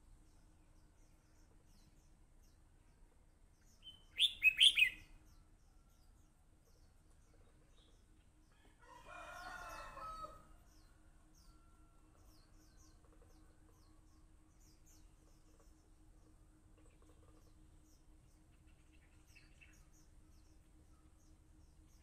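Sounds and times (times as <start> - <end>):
loud whistled bird song: 3.8 - 5.1.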